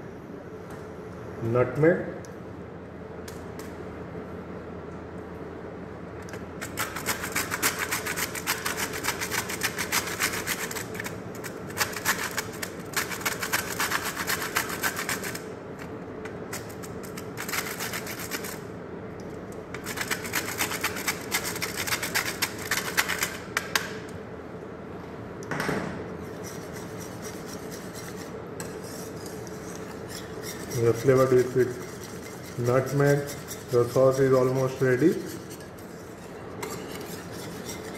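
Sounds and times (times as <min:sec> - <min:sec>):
nutmeg grated on metal grater: 0:06.6 - 0:15.4, 0:19.8 - 0:23.4, 0:26.3 - 0:37.9.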